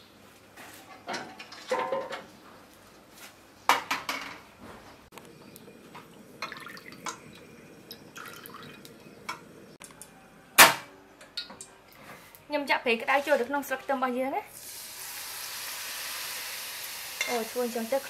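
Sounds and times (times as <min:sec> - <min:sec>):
metal cookware clattering: 0:01.0 - 0:02.3.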